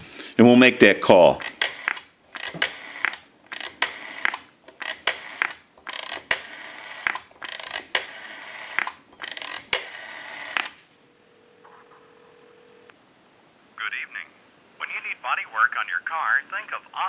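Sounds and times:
rotary dial whirring and ticking: 1.4 - 10.8
telephone rotary dial clicking: 1.4 - 10.8.

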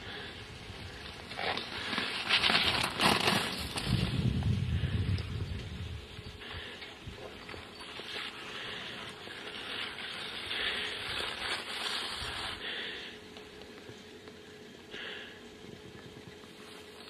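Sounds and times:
skis scraping on hard snow: 1.2 - 4.5, 7.7 - 12.7.

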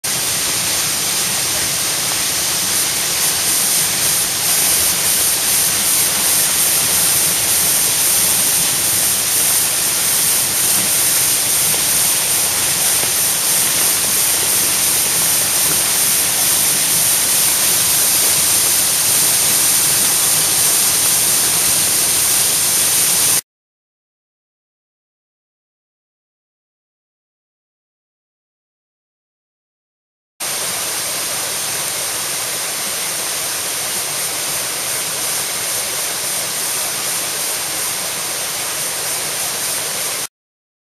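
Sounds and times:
waterfall rushing: 0.0 - 23.4, 30.4 - 40.3.

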